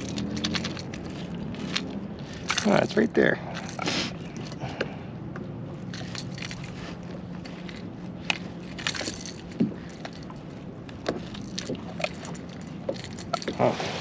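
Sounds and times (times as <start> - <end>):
rustling and scraping: 0.0 - 14.0.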